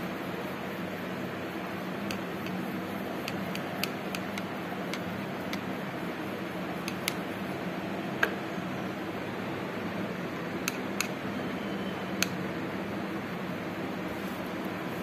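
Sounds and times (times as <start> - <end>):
background hum and hiss: 0.0 - 15.0
paintbrush clicking in palette: 3.2 - 5.7.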